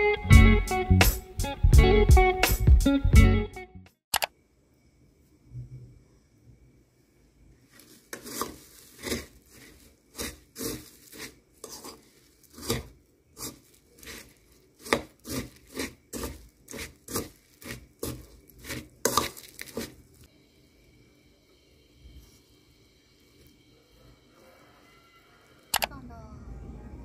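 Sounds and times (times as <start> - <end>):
spoon stirring dry food in bowl: 7.7 - 20.3.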